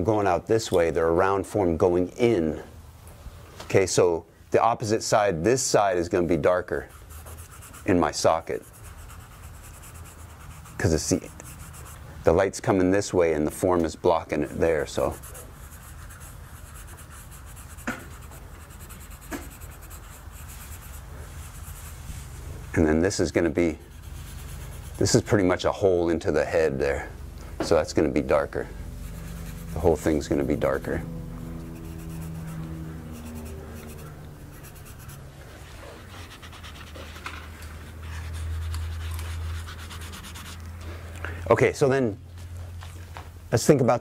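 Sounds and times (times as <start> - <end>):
steady low hum: 5.9 - 43.8
pencil scratching on paper: 6.7 - 12.1, 14.8 - 22.2, 23.8 - 25.4, 29.0 - 30.3, 31.6 - 37.3, 38.0 - 40.6.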